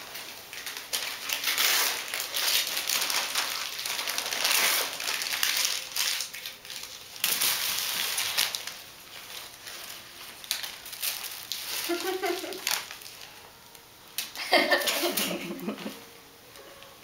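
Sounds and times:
paper rustling and crinkling: 0:00.0 - 0:13.4.

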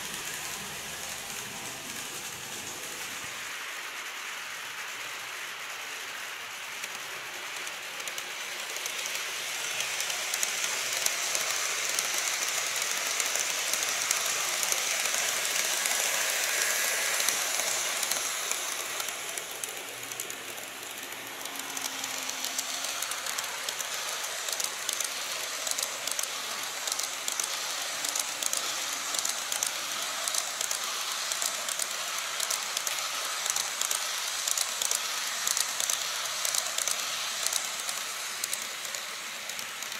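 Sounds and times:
model train passing with rapid clicking: 0:00.0 - 0:39.9
model train wheels rattling on track: 0:00.0 - 0:39.9.

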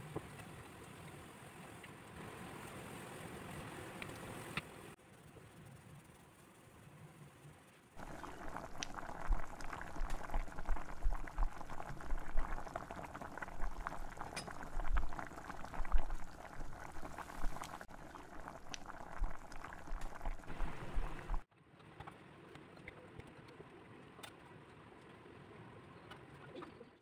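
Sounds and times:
broth boiling in a pan: 0:00.0 - 0:21.5.

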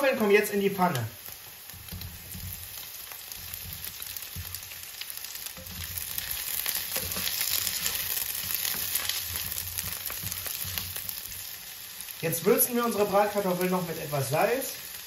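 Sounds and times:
potatoes sizzling in a frying pan: 0:00.0 - 0:15.0
spatula scraping a pan: 0:05.4 - 0:11.9.

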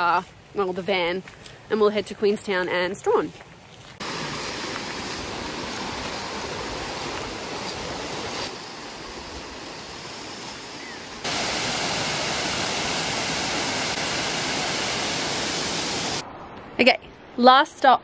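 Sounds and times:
river water rushing: 0:04.0 - 0:16.2
waterfall cascading over rock: 0:04.0 - 0:16.2.

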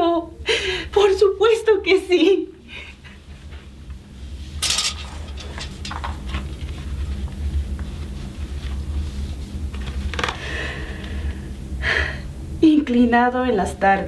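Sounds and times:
steady low hum: 0:00.0 - 0:14.0
paper rustling: 0:04.6 - 0:10.4.

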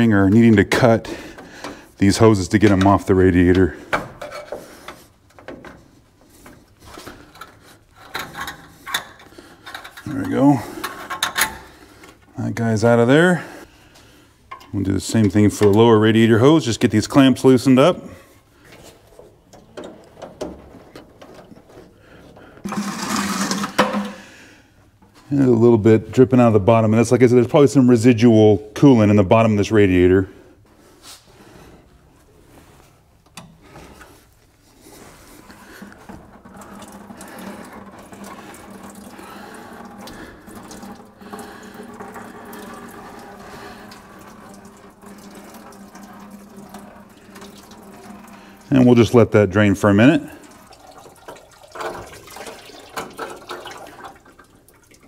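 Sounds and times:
coolant trickling from hose: 0:33.6 - 0:55.0.

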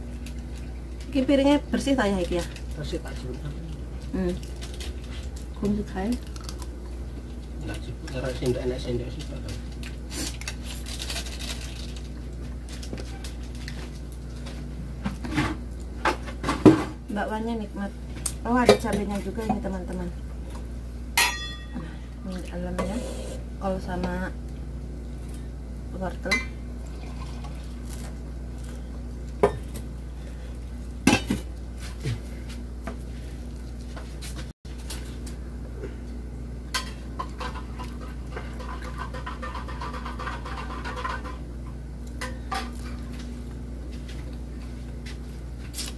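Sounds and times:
low steady hum: 0:00.0 - 0:45.9
kitchenware scraping and rattling: 0:36.8 - 0:41.5.

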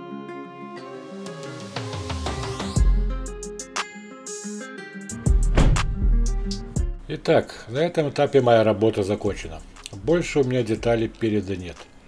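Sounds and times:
plucked guitar music: 0:00.0 - 0:01.6, 0:02.9 - 0:07.1
deep bass beat: 0:05.3 - 0:07.1.

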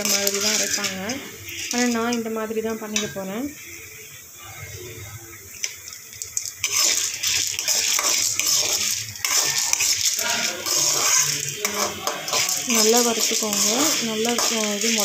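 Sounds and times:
ladle scraping metal pan: 0:00.0 - 0:02.0, 0:06.6 - 0:15.0
grains rattling over metal: 0:00.0 - 0:02.4, 0:06.4 - 0:15.0.

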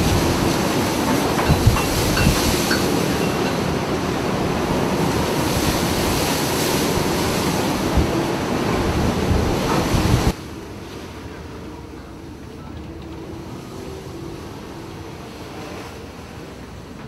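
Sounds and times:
storm wind on microphone: 0:00.0 - 0:10.4
heavy seas breaking: 0:00.0 - 0:17.0.

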